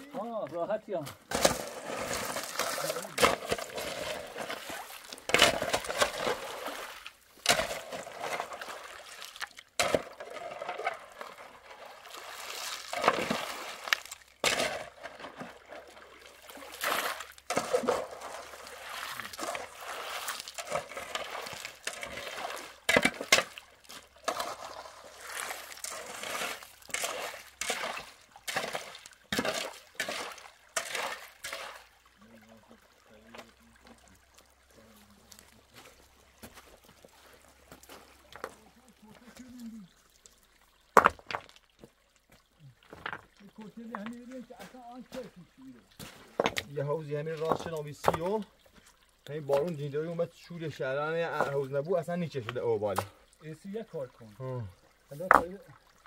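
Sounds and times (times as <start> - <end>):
water trickling and splashing: 0.0 - 56.0
shovel digging into wet gravel: 16.7 - 23.6, 24.2 - 31.8.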